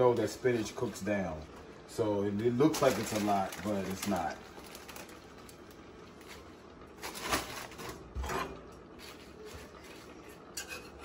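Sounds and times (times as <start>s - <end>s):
plastic bag rustling: 2.3s - 8.4s.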